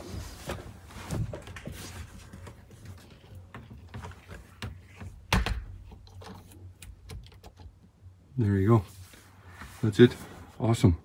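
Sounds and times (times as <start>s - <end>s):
door panels knocking and rustling: 1.0s - 6.2s
door thumping shut: 5.3s - 5.8s.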